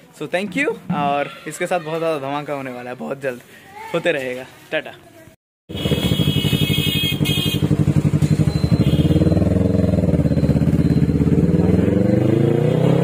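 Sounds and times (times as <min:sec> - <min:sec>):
motorcycle engine revving away: 0:05.7 - 0:13.0.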